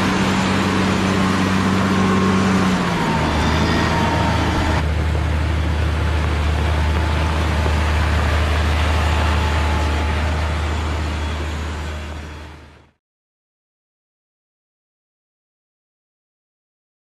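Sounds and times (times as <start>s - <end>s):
diesel engine running: 0.0s - 13.0s.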